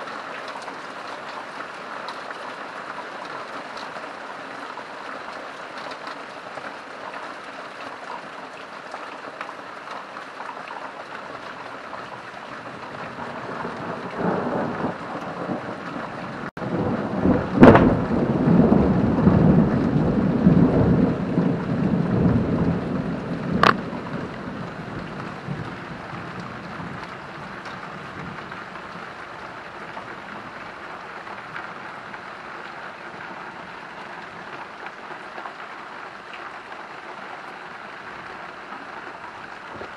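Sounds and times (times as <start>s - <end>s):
steady rain falling: 0.0s - 39.9s
thunder cracking and rumbling: 12.6s - 32.3s.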